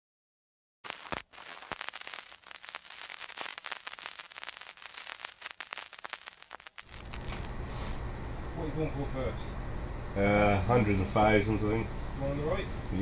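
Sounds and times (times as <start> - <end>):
crackling static glitch: 0.8 - 7.5.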